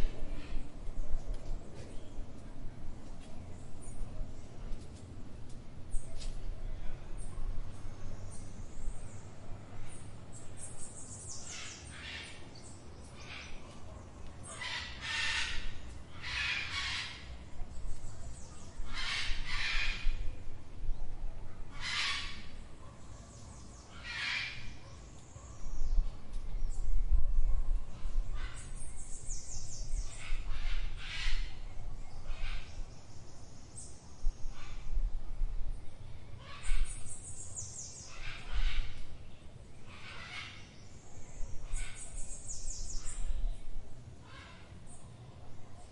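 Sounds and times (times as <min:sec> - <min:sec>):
low traffic rumble: 0:00.0 - 0:45.9
harsh bird calls: 0:14.4 - 0:17.5, 0:21.8 - 0:22.7, 0:23.6 - 0:25.6.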